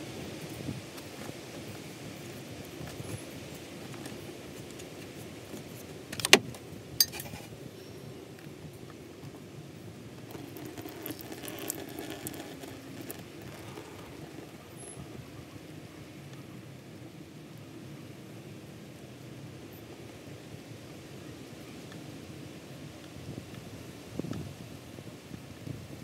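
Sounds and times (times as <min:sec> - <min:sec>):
light clinking and handling noise: 0:00.4 - 0:08.0.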